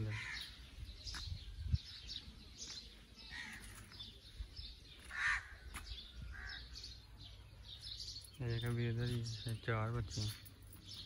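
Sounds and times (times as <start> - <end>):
birds chirping: 0.0 - 11.0
crow cawing: 5.1 - 5.6, 6.3 - 6.6.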